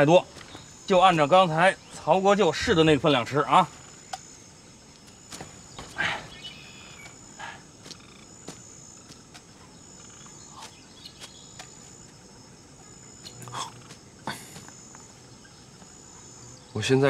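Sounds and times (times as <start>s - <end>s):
bird chirps: 0.0s - 17.0s
high insect trill: 0.0s - 17.0s.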